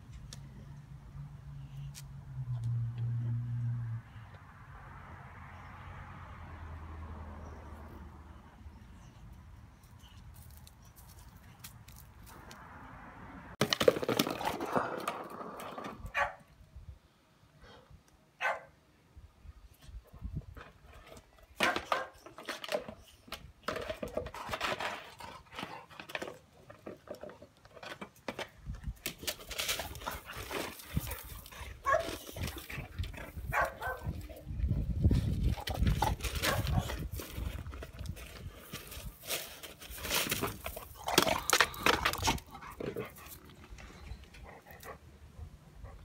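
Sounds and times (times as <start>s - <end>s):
plastic pot scraping on paving: 13.6s - 16.1s, 20.6s - 44.1s.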